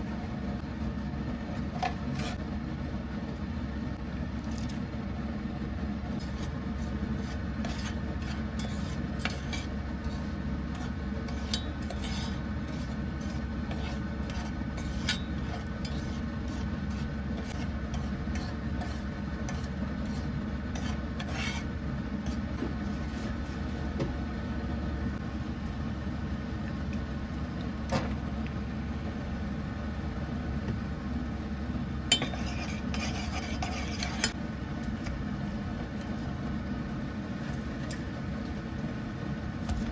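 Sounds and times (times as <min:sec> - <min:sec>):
steady low hum: 0:00.0 - 0:39.9
metal spoon scraping a saucepan: 0:06.2 - 0:23.3, 0:32.1 - 0:34.4.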